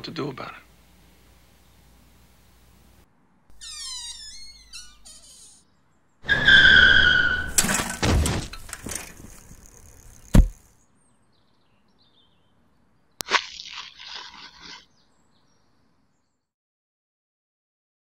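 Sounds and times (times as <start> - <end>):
loud high screech: 3.6 - 5.6, 6.2 - 7.6
heavy thud: 7.5 - 9.3, 10.3 - 10.6.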